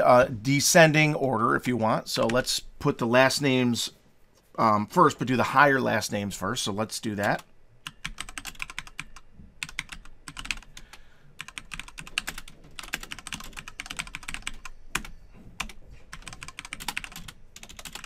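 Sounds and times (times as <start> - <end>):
typing on computer keyboard: 7.2 - 18.0.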